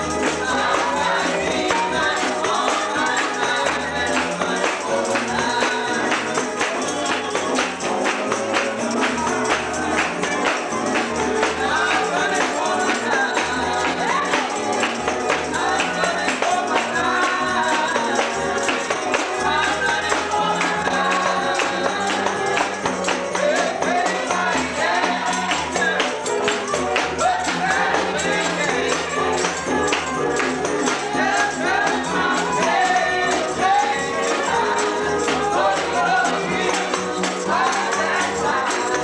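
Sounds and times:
congregation singing gospel: 0.0 - 39.0
tambourines: 0.0 - 39.0.

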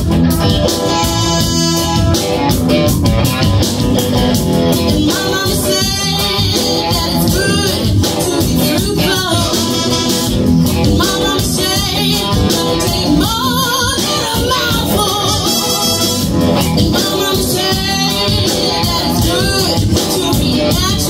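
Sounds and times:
funk band playing: 0.0 - 21.0
woman singing: 4.7 - 10.3, 11.0 - 16.1, 16.8 - 21.0.

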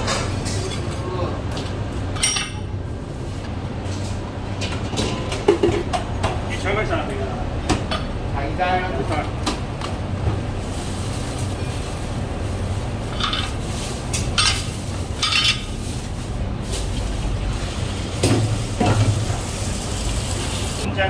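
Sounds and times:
low background hum: 0.0 - 21.0
plastic bag rustling and crinkling: 10.4 - 19.8.

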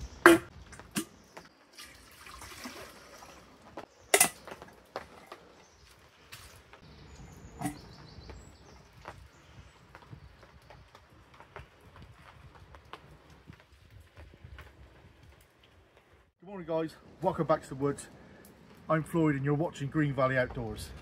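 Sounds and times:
water pouring into metal kettle: 1.7 - 3.6.

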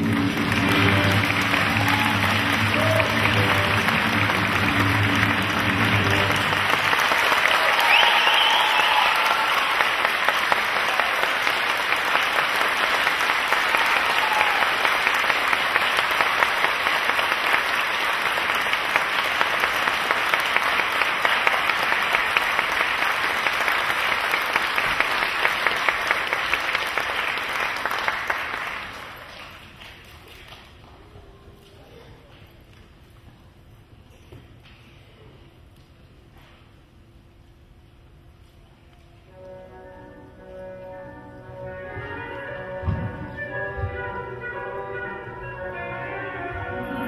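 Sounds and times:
music: 0.0 - 8.6, 39.3 - 47.0
audience applauding: 0.0 - 30.7.

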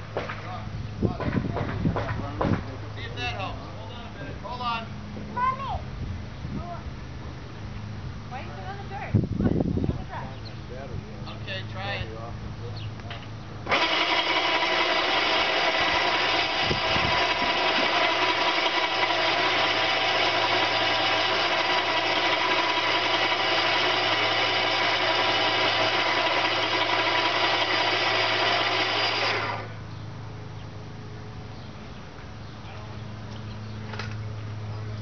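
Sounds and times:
motor-driven rope winch running: 13.6 - 29.9.

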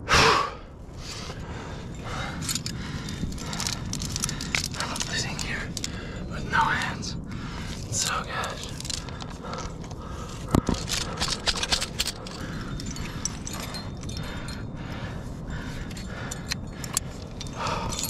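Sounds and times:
steady low rush: 0.0 - 18.0
climbing hardware clinking: 1.3 - 7.0, 7.6 - 18.0
carabiner clicks: 2.1 - 6.0, 7.8 - 14.5.

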